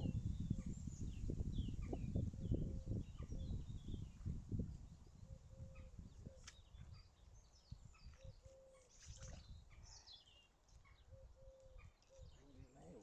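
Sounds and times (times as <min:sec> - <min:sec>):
birds chirping: 0:05.1 - 0:13.0.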